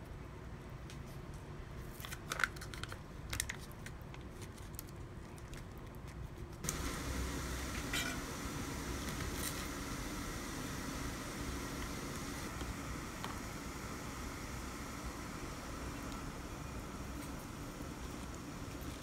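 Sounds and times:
plastic sachet crinkling: 1.9s - 6.0s
steady hiss: 6.6s - 19.0s.

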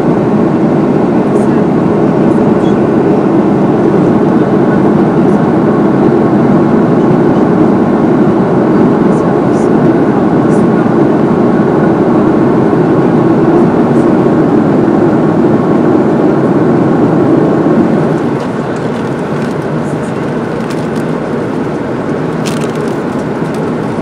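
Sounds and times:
airplane cabin engine hiss: 0.0s - 24.0s
crisp packet crackling: 22.4s - 23.7s.

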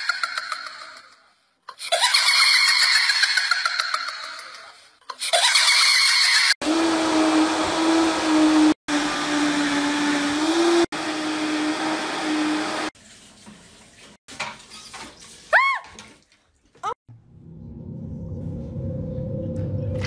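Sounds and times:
blender motor humming: 6.6s - 13.0s.

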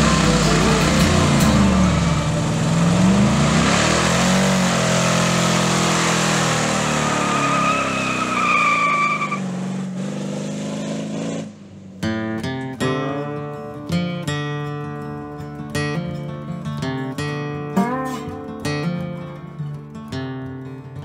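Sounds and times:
spinning tyres hissing: 0.0s - 11.9s
engine revving: 0.0s - 12.3s
tyre squeal: 6.9s - 9.5s.

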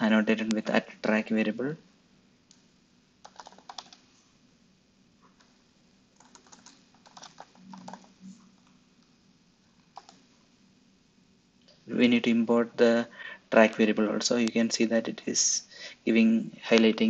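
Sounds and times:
faint keyboard typing: 2.5s - 4.2s, 5.2s - 5.6s, 6.2s - 10.3s.

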